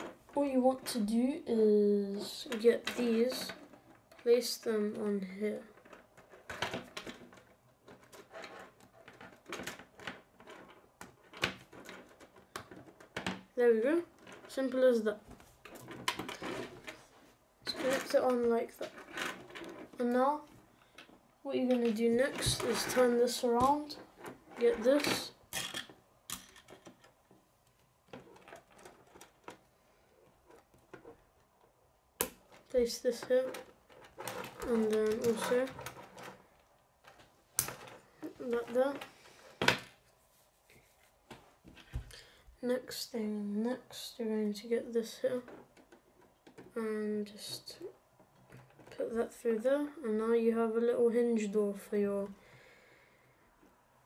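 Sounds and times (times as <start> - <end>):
plastic pieces clicking together: 23.6 - 29.6
plastic toy pieces clicking: 25.1 - 27.1.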